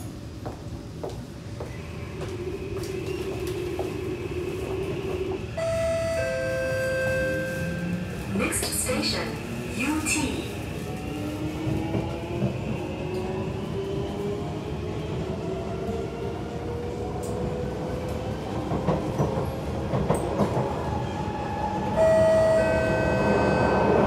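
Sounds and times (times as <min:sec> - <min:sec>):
loud steady tone: 0:05.6 - 0:07.8.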